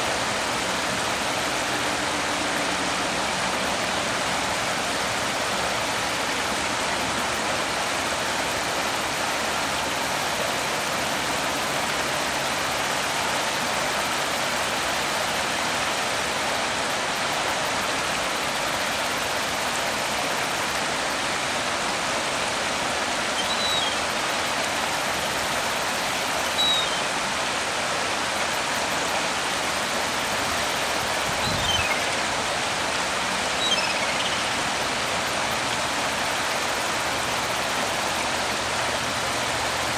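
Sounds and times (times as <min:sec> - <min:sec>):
water rushing over rocks: 0:00.0 - 0:39.9
faint high chirps: 0:23.4 - 0:24.0, 0:26.4 - 0:27.2, 0:31.3 - 0:32.2, 0:33.6 - 0:34.6.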